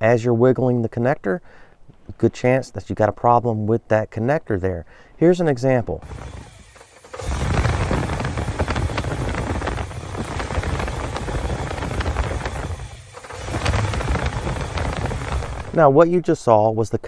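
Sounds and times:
engine speed rising and falling: 6.0s - 16.0s.

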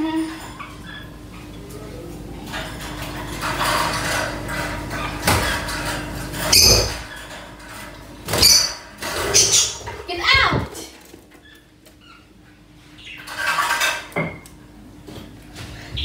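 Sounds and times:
wire birdcage rattling: 2.5s - 11.6s, 13.2s - 14.1s.

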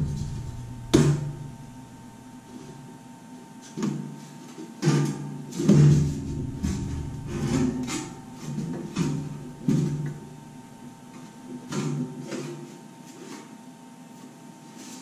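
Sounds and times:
faint steady hum: 0.0s - 3.5s, 6.0s - 11.8s.

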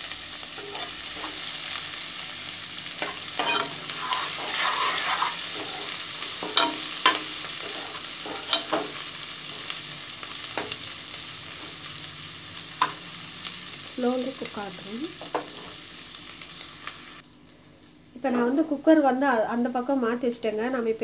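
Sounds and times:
onions sizzling in oil: 0.0s - 17.2s
spoon scraping a pot: 0.6s - 1.5s, 3.0s - 9.0s.

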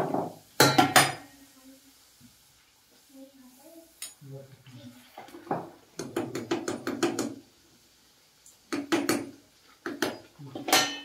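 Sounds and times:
metal spoon tapping iron pan: 0.0s - 1.3s, 6.0s - 7.4s, 8.7s - 11.0s.

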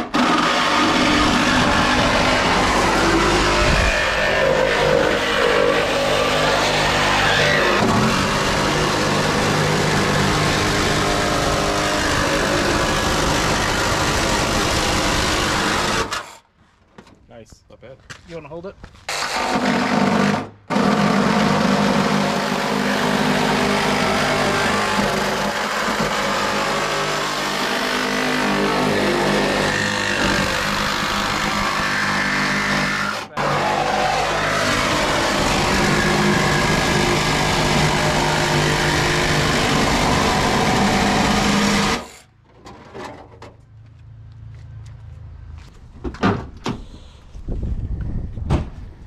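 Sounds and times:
angle grinder cutting steel: 0.0s - 16.4s, 19.1s - 42.3s.

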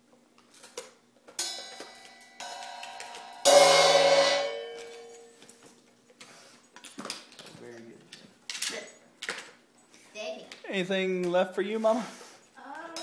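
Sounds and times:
metallic chime strikes: 1.4s - 5.4s.

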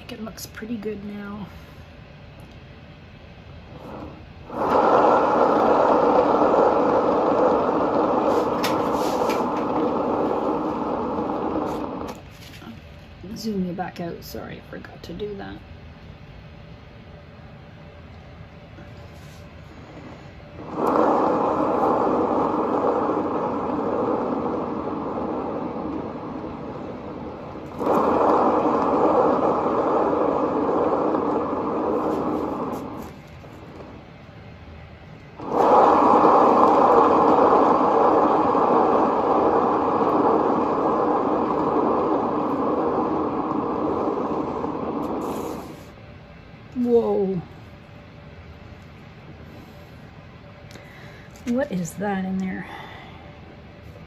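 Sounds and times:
spinner whirring: 3.6s - 12.6s, 19.9s - 34.2s, 35.3s - 46.0s.

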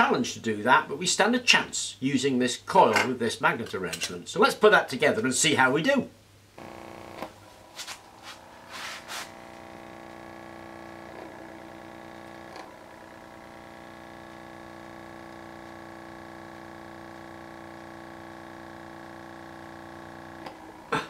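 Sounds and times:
steady buzzing drone: 6.6s - 21.0s.

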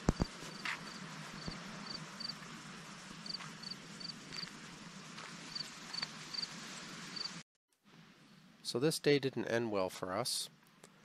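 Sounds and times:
background hiss: 0.0s - 11.0s.

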